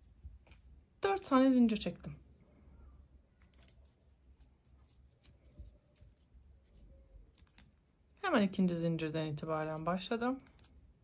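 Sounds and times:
paper yarn rustling: 0.0s - 2.3s, 3.3s - 8.0s, 9.4s - 11.0s.

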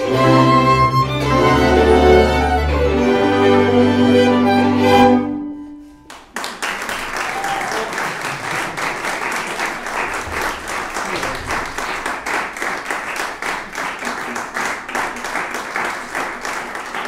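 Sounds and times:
folk string band playing: 0.0s - 5.9s
audience applauding: 6.1s - 17.0s.

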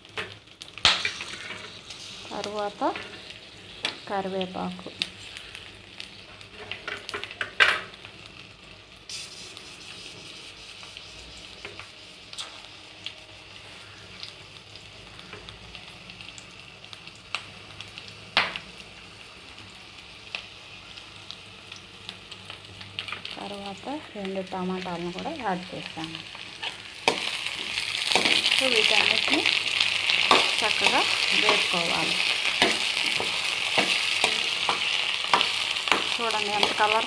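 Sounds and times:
vegetables sizzling in oil: 0.0s - 37.0s.

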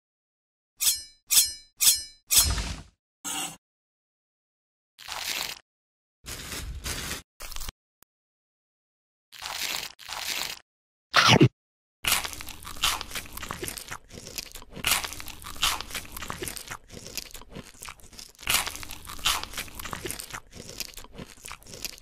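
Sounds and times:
crunchy bites and chewing: 5.0s - 5.6s, 6.3s - 7.7s, 9.3s - 22.0s.

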